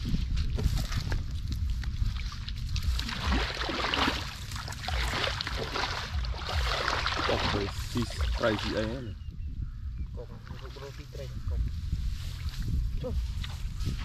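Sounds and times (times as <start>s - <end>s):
water sloshing and splashing: 0.0s - 9.2s, 10.2s - 11.4s
low rumble: 0.0s - 14.0s.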